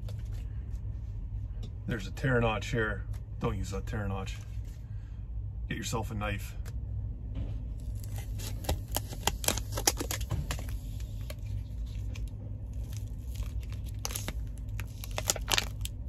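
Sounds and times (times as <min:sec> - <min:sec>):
steady low hum: 0:00.0 - 0:16.0
pouch crinkling and tearing: 0:07.9 - 0:16.0.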